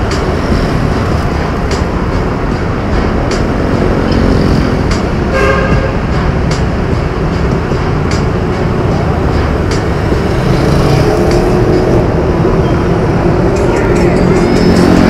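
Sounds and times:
road and wind noise: 0:00.0 - 0:15.0
vehicle horn toot: 0:05.3 - 0:06.0.

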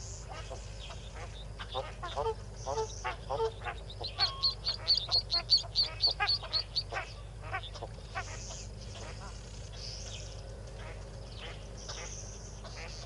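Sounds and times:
ducklings peeping: 0:00.0 - 0:13.0
lower scattered calls: 0:00.0 - 0:13.0.

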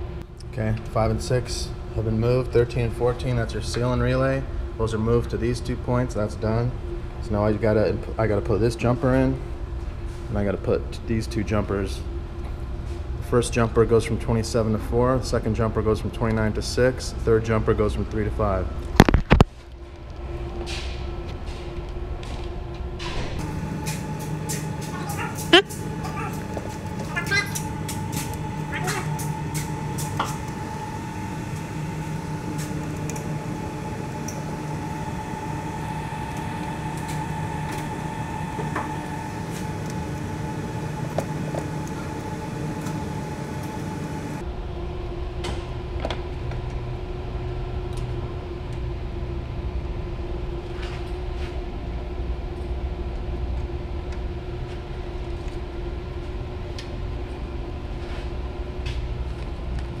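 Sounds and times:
machinery hum: 0:00.0 - 0:18.9, 0:19.6 - 1:00.0
deep machinery rumble: 0:19.8 - 1:00.0.

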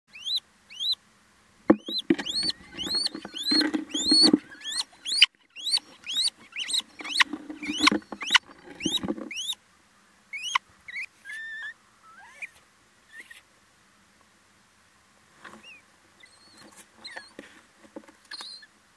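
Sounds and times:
owls squeaky calls: 0:00.1 - 0:01.0, 0:01.8 - 0:09.6, 0:10.3 - 0:13.4, 0:15.6 - 0:17.4, 0:18.3 - 0:18.7
birds scuffling on nest litter: 0:01.7 - 0:09.6, 0:15.3 - 0:18.7.

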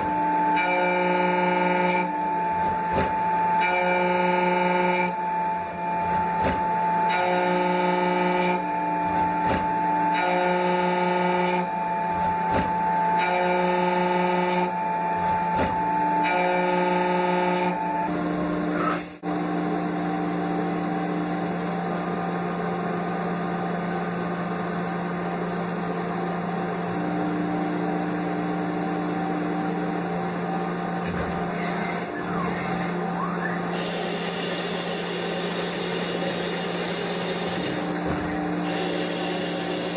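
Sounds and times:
drill boring metal hum: 0:00.0 - 0:19.3, 0:27.2 - 0:39.9.

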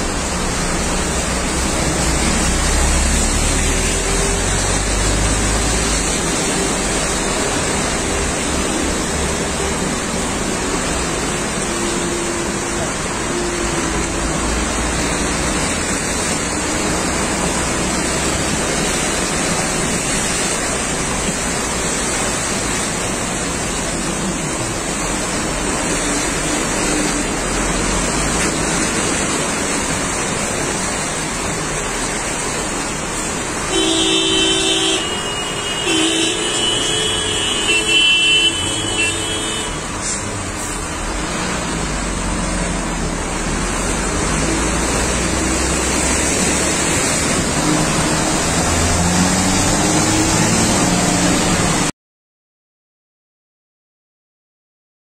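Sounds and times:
vehicles moving through floodwater: 0:00.0 - 0:51.9
vehicle horn honking: 0:33.7 - 0:39.9.

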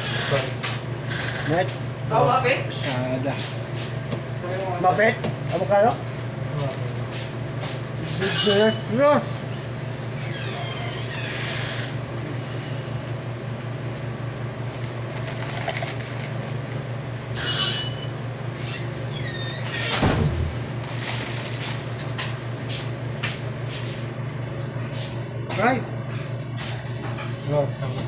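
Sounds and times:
low machine hum: 0:00.0 - 0:28.0
short squeaks and clicks: 0:10.1 - 0:12.0, 0:17.4 - 0:20.1.

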